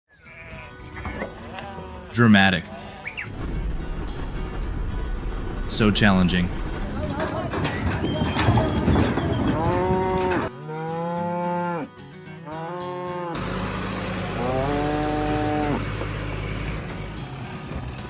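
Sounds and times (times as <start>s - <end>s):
cattle mooing: 0.3s - 3.3s, 8.2s - 13.5s, 14.2s - 15.9s
rough background noise: 3.1s - 10.5s.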